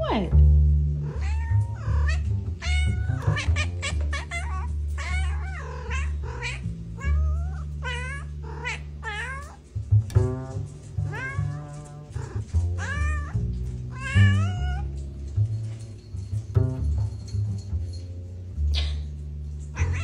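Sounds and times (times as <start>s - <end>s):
cat meowing: 1.1s - 9.6s, 11.1s - 11.6s, 12.2s - 13.3s, 13.9s - 14.9s, 19.7s - 20.0s
background music with bass line: 9.8s - 20.0s.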